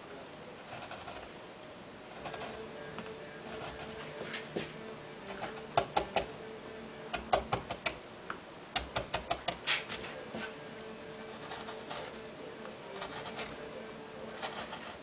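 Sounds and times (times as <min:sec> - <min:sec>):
faint steady hum: 0:00.0 - 0:15.0
carving gouge cutting wood: 0:00.7 - 0:01.3, 0:02.1 - 0:02.6, 0:11.2 - 0:12.2, 0:12.9 - 0:13.7, 0:14.3 - 0:15.0.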